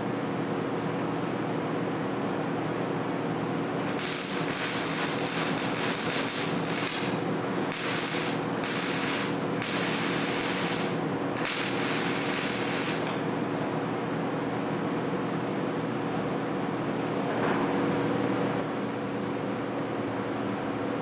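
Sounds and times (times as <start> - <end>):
steady hum: 0.0 - 17.0
welder arc crackling: 3.8 - 13.3.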